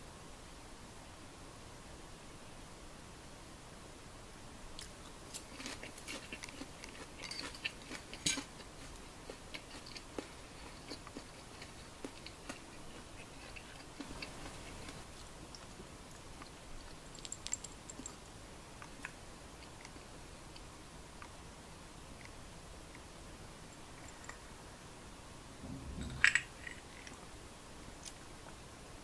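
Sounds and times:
person chewing crispy chicken: 4.8s - 17.0s.

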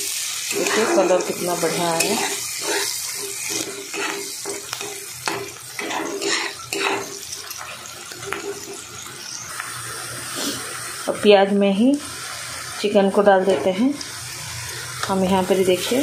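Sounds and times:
onions sizzling in hot oil: 0.0s - 16.0s
metal spatula scraping pan: 0.1s - 9.0s.

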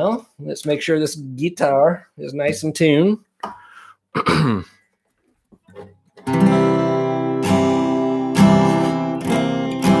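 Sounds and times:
acoustic guitar chords strummed: 5.8s - 10.0s.

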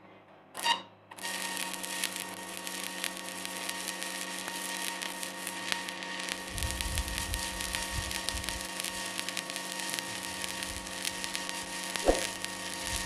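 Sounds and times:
welding arc crackling: 1.2s - 13.0s
short pop: 12.0s - 12.3s.

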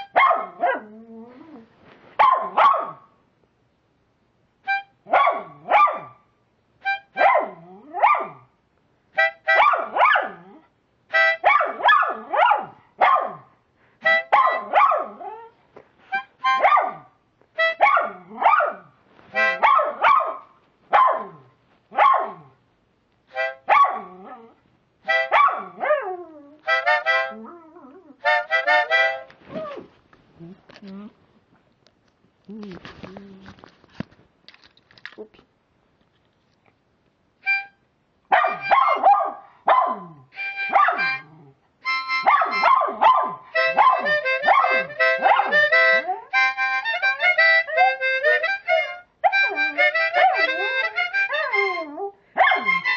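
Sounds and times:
harmonica playing: 4.6s - 5.0s, 6.8s - 7.2s, 9.1s - 9.6s, 11.1s - 11.4s, 14.0s - 14.4s, 16.0s - 16.6s, 17.6s - 17.8s, 19.3s - 19.6s, 23.3s - 23.7s, 25.1s - 25.3s, 26.6s - 27.4s, 28.2s - 29.3s, 37.4s - 37.8s, 40.3s - 41.2s, 41.8s - 42.7s, 43.5s - 52.0s, 52.6s - 52.9s
dog howling: 49.3s - 52.8s.

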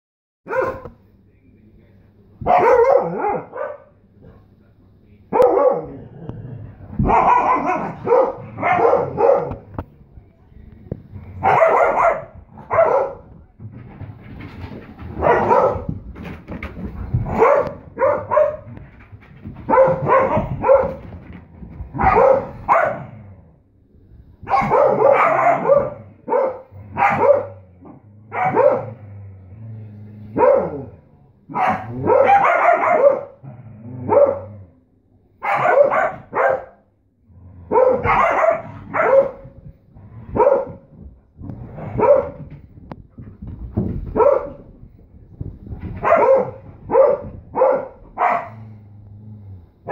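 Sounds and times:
dogs barking: 0.5s - 1.0s, 2.4s - 4.0s, 5.3s - 6.0s, 7.0s - 9.7s, 11.4s - 13.3s, 15.2s - 15.9s, 17.2s - 18.8s, 19.7s - 21.2s, 21.9s - 23.2s, 24.5s - 27.6s, 28.3s - 29.0s, 30.4s - 30.9s, 31.5s - 33.4s, 34.1s - 34.5s, 35.4s - 36.8s, 37.6s - 39.6s, 40.3s - 40.9s, 41.8s - 42.6s, 44.1s - 44.7s, 45.8s - 48.8s.

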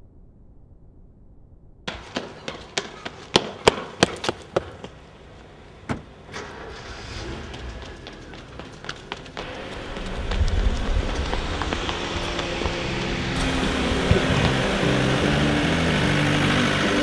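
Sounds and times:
hard footsteps on paving: 1.9s - 6.2s, 7.3s - 15.7s
rushing noise: 6.3s - 17.0s.

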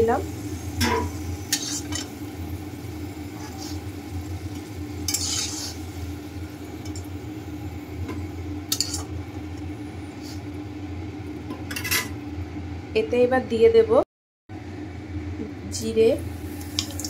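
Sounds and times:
oil sizzling: 0.0s - 12.5s, 15.8s - 17.0s
spatula scraping metal pan: 5.1s - 5.8s.

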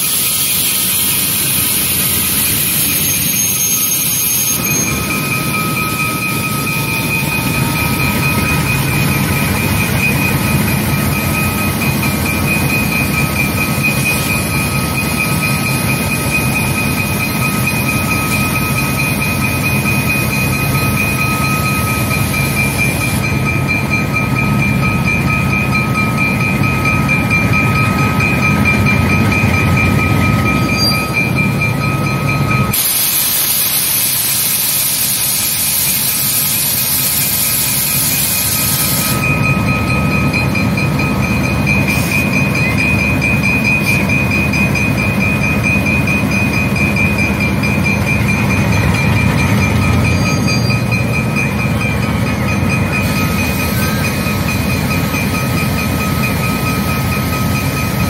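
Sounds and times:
loud hiss of air: 0.0s - 3.0s, 32.8s - 39.1s
steady high whine: 0.0s - 57.6s
diesel locomotive engines: 0.0s - 58.0s.

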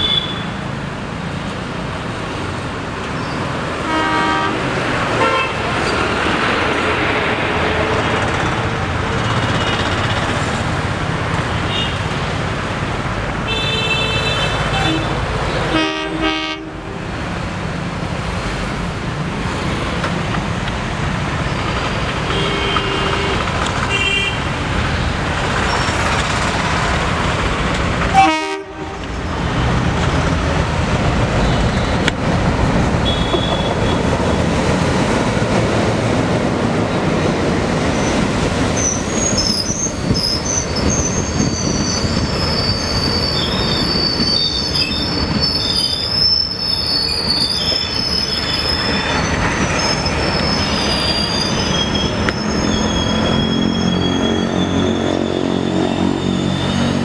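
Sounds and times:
wheels rumbling on rails: 0.0s - 13.5s, 14.6s - 57.0s
train horn toots: 3.8s - 5.6s, 13.5s - 17.0s, 22.3s - 24.4s, 28.1s - 29.1s, 33.0s - 34.0s
diesel locomotive engines running: 14.6s - 57.0s
high wavering wheel squeal: 38.8s - 57.0s.

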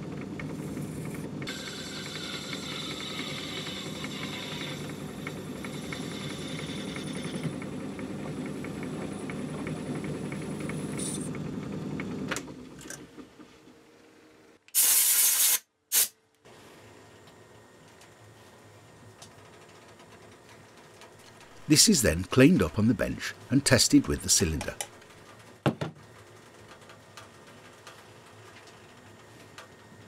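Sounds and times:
lathe humming and ticking: 0.1s - 12.1s.

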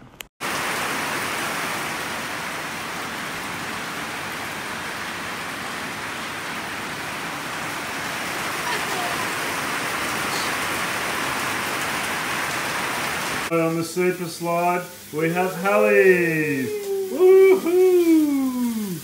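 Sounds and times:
rain falling on wooden deck: 0.4s - 19.0s.

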